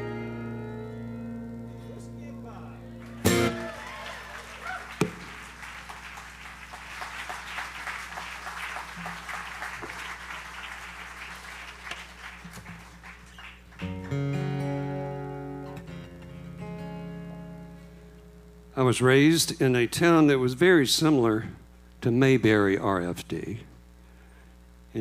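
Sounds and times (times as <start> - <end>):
acoustic guitar chords: 0.0 - 6.6, 13.8 - 19.0
audience applause: 3.0 - 14.4.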